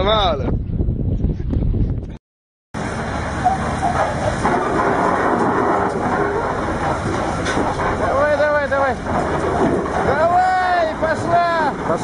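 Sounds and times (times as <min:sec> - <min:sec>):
heavy diesel truck engines: 0:02.8 - 0:12.0.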